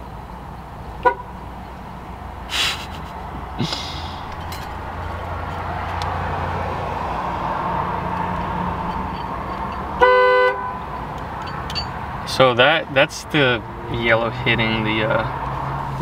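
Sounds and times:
car horn sounding: 1.0s - 1.4s, 10.0s - 11.0s.

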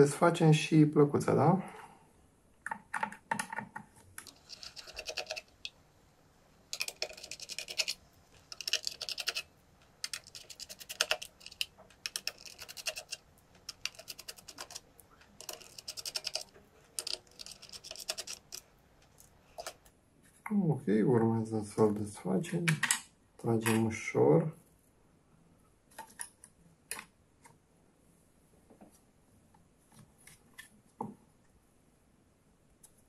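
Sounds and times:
small screwdriver clicking and scratching: 4.2s - 5.7s, 6.7s - 19.9s.

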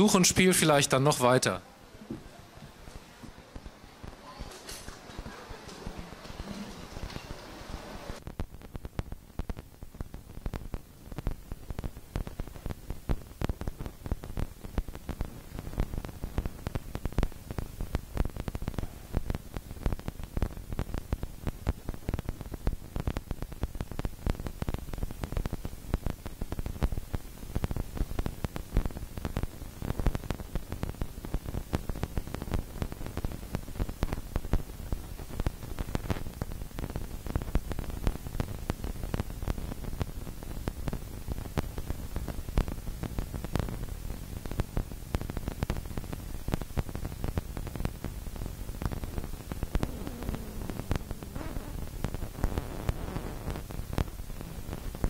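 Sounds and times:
heavy rain falling: 4.4s - 8.2s, 48.0s - 52.5s.

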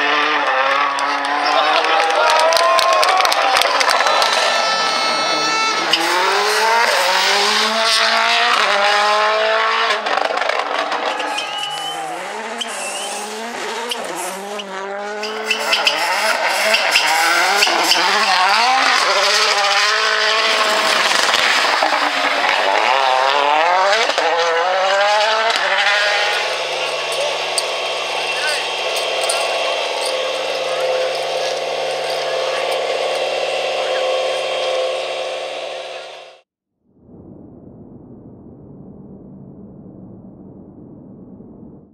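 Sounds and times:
rally car engine revving past: 0.0s - 36.4s.

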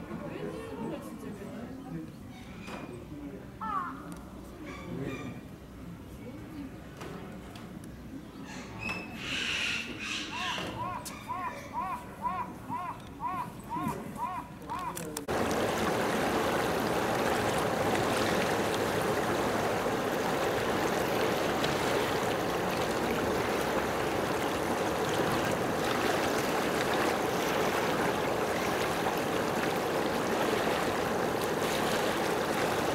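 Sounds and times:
rushing water: 15.2s - 32.9s.

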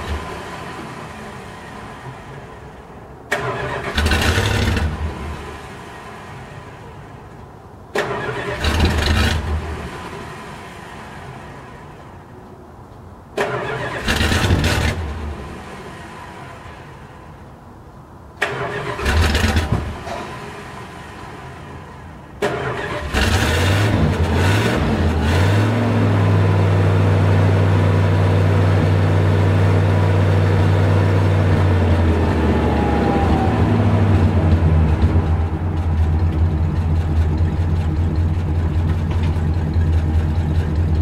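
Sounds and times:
car engine cranking and starting: 0.0s - 12.3s, 13.3s - 17.6s, 18.3s - 41.0s
car engine idling: 26.5s - 41.0s.

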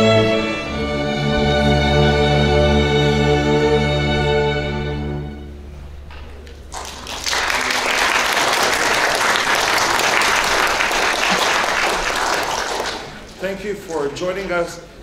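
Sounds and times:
audience applauding: 6.5s - 14.2s.

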